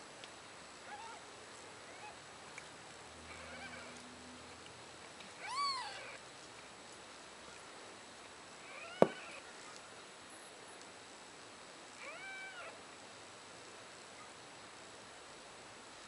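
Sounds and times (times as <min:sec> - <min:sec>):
cat meowing: 0:05.4 - 0:06.2, 0:12.0 - 0:12.8.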